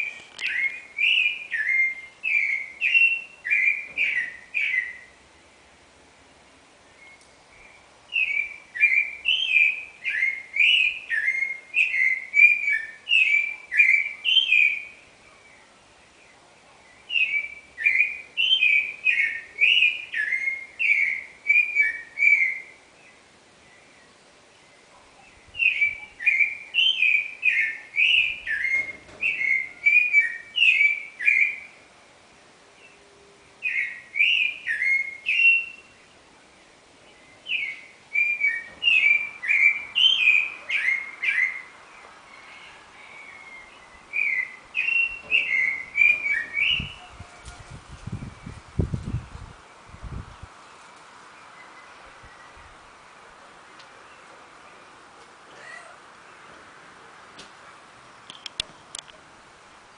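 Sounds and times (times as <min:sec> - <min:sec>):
thrush singing whistled notes: 0:00.0 - 0:05.2, 0:06.9 - 0:15.1, 0:17.0 - 0:31.8, 0:33.6 - 0:47.3.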